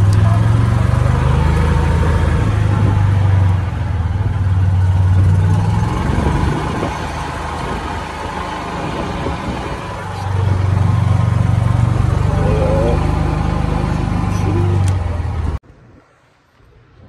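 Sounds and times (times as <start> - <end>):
golf cart motor drone: 0.0 - 15.6.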